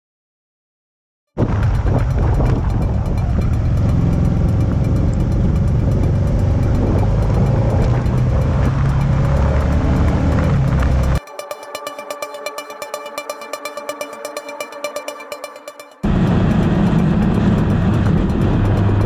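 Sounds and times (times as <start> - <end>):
motorcycle engine hum: 1.4 - 11.2, 16.0 - 19.0
wind and road rush: 1.4 - 11.2, 16.0 - 19.0
electronic music: 1.4 - 19.0.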